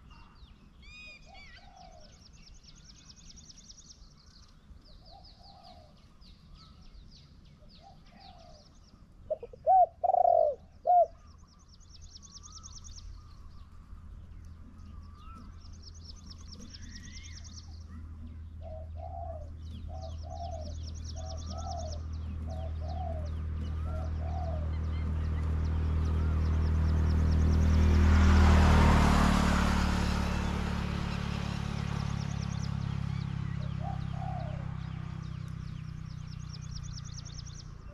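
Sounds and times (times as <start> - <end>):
low vehicle rumble: 0.0 - 37.9
small songbirds trilling: 0.0 - 37.9
doves cooing: 1.2 - 2.2, 9.2 - 11.3, 16.2 - 27.8, 32.7 - 37.9.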